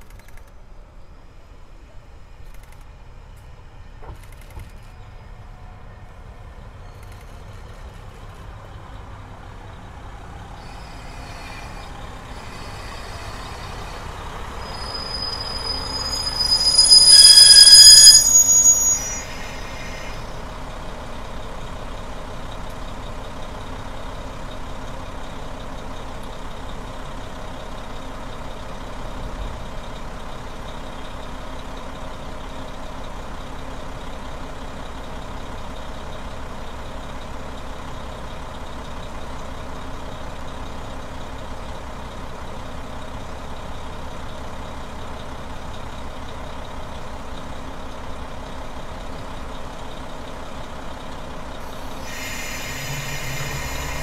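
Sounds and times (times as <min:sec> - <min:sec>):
diesel railcar arriving: 0:00.0 - 0:54.0
diesel engines idling: 0:00.6 - 0:17.1, 0:18.6 - 0:54.0
high brake squeal: 0:06.8 - 0:07.9, 0:10.3 - 0:22.6, 0:50.8 - 0:54.0.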